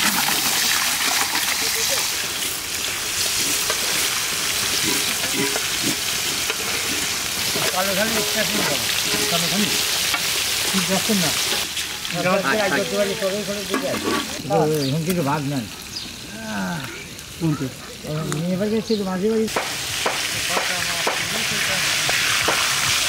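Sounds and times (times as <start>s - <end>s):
fish sizzling in hot oil: 0.0s - 23.0s
spatula turning fish: 3.2s - 11.7s.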